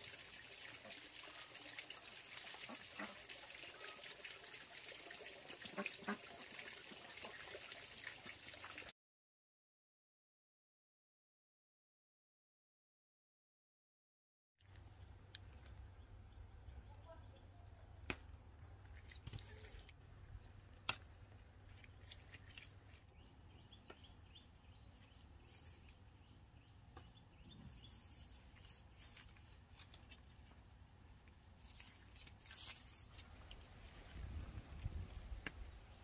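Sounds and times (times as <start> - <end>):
stems snapping: 17.6 - 20.0, 20.7 - 23.1
leaves rustling: 27.7 - 30.6, 31.4 - 36.0.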